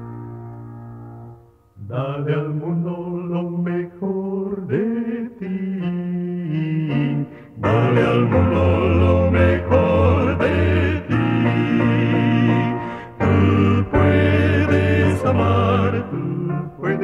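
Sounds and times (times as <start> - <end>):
vocal quartet singing in harmony: 1.8 - 17.0.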